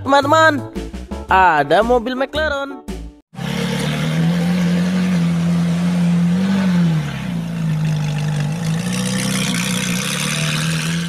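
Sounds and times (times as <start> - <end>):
car engine running: 3.4 - 11.0.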